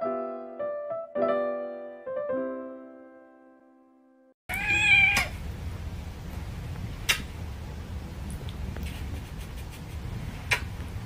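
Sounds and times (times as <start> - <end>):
cat meowing: 4.5 - 5.4
sharp click: 7.1 - 7.3.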